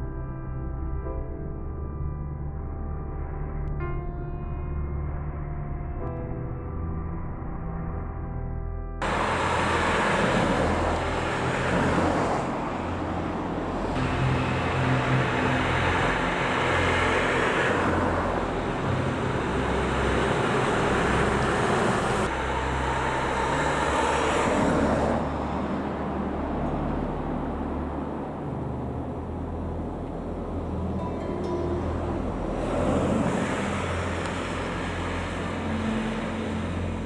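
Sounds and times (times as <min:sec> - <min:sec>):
low engine hum: 0:00.0 - 0:37.0
cars passing: 0:09.0 - 0:37.0.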